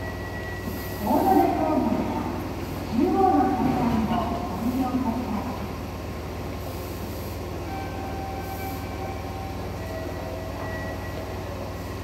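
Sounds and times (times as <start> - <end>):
train equipment humming: 0.0 - 12.0.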